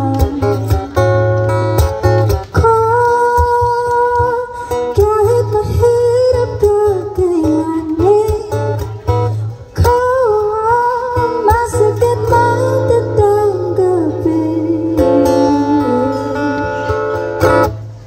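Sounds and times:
woman singing: 0.0s - 0.9s, 2.5s - 8.9s, 9.8s - 17.2s
strummed acoustic guitar: 0.0s - 18.0s.

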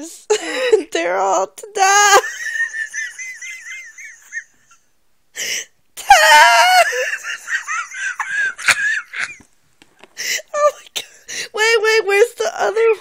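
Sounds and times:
person giggling: 6.6s - 9.5s.

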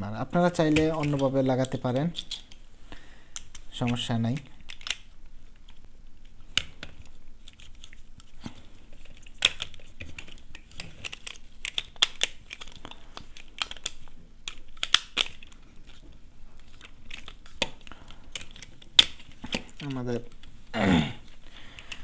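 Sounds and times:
plastic rustling: 0.4s - 22.0s
plastic clicks and snaps: 3.3s - 8.0s, 9.0s - 16.0s.

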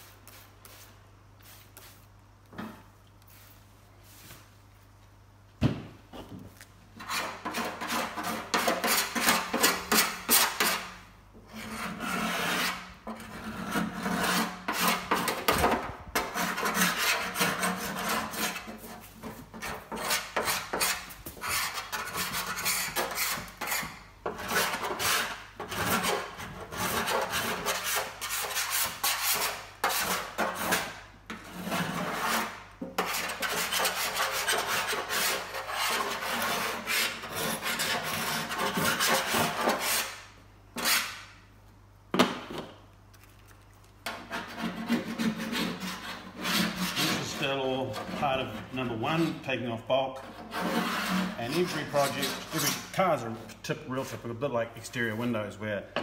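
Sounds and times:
scraper rasping on metal: 7.0s - 10.9s, 11.5s - 40.2s, 44.1s - 49.4s, 50.1s - 52.9s.

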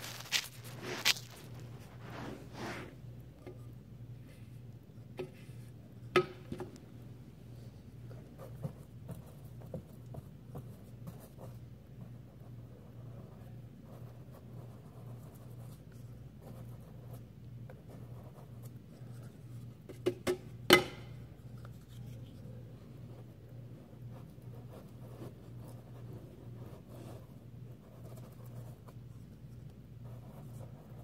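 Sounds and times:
paintbrush strokes on wood: 0.0s - 3.0s
low steady hum: 0.0s - 31.0s.

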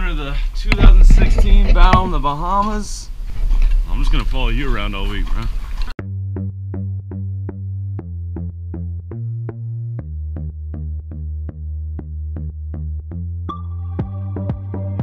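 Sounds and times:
low synth bass line: 6.0s - 15.0s.

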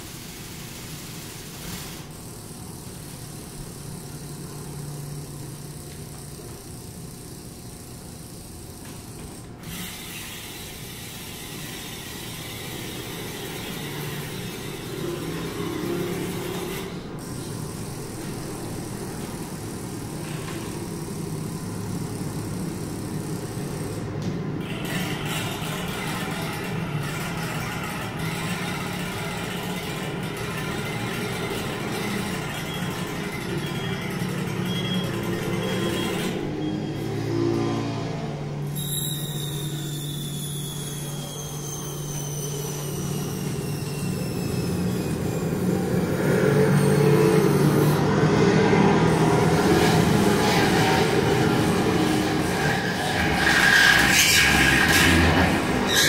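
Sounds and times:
bicycle wheel spinning drone: 0.0s - 56.0s
high gliding whistling tones: 38.7s - 48.6s.

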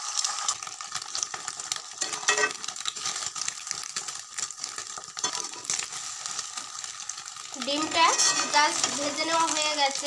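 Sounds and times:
egg sizzling in hot oil: 0.0s - 10.0s
metal spatula scraping pan: 2.0s - 2.6s, 7.8s - 9.4s.

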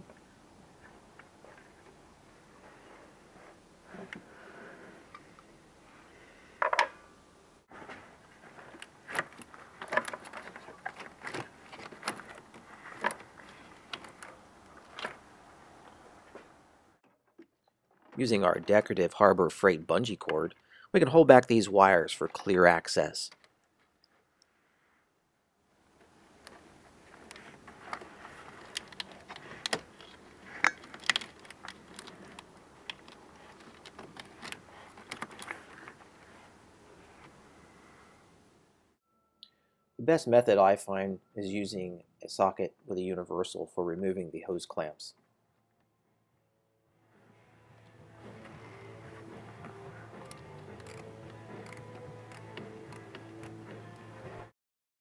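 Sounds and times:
plastic wiring loom clicking and rustling: 8.6s - 15.2s, 26.4s - 36.4s, 50.2s - 53.6s.

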